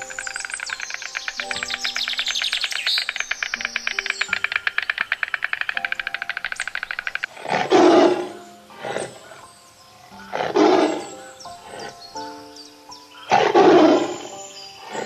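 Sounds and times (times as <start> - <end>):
stork bill clattering: 0.0 - 9.1
background music: 0.0 - 15.0
tiger roaring: 7.3 - 9.4, 10.2 - 12.0, 13.3 - 15.0.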